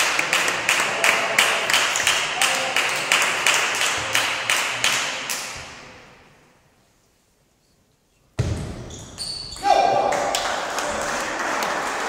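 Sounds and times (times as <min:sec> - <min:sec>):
spectators clapping in rhythm: 0:00.0 - 0:05.6, 0:10.0 - 0:12.0.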